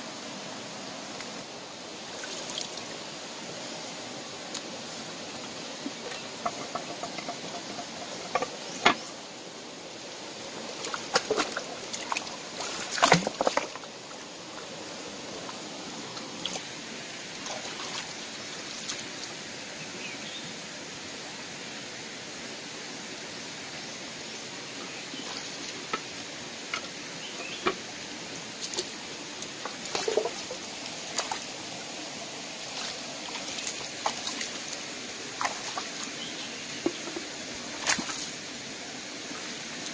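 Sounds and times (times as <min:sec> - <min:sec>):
shallow stream running: 0:00.0 - 0:39.9
stones knocking and scraping: 0:05.9 - 0:09.0, 0:36.8 - 0:38.2.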